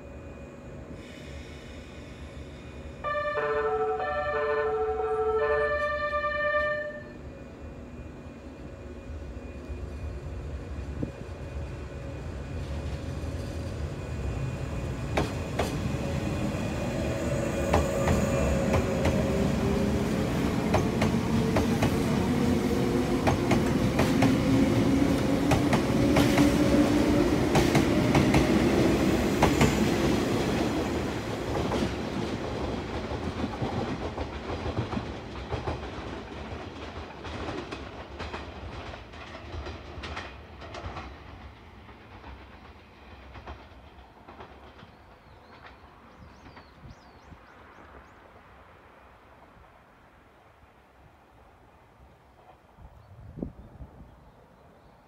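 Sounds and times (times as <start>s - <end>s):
train running rumble: 5.7s - 48.0s.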